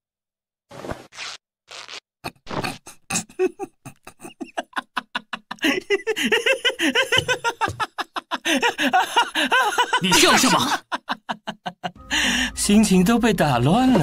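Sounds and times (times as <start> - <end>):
man laughing: 2.4 - 12.0.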